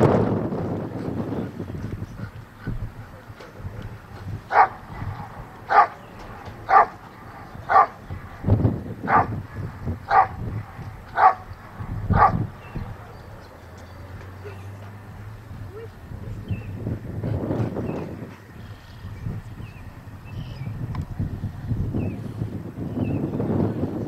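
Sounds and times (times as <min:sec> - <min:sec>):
dog barking: 0:04.5 - 0:06.0, 0:06.6 - 0:08.0, 0:09.1 - 0:09.4, 0:10.1 - 0:10.4, 0:11.1 - 0:11.5, 0:12.1 - 0:12.5.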